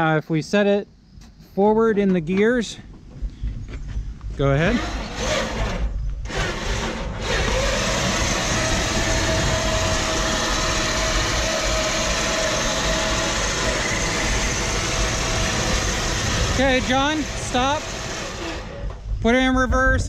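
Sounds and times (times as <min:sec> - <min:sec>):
electric motor whine: 0:04.6 - 0:19.0.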